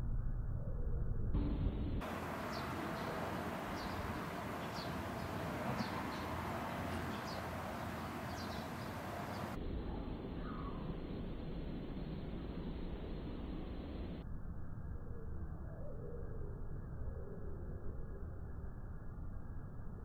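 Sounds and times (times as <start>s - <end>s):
small birds chirping: 2.0s - 11.1s
steady hiss: 2.0s - 14.2s.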